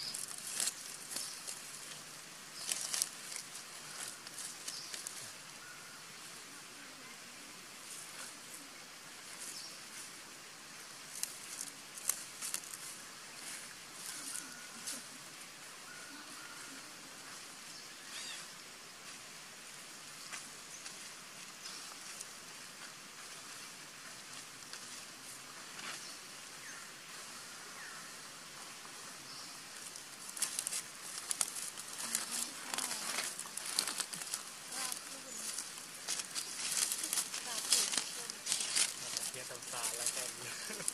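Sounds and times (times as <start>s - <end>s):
dry leaves crackling and rustling: 0.0s - 7.1s, 11.0s - 17.5s, 28.8s - 40.9s
steady outdoor hiss: 0.0s - 40.9s.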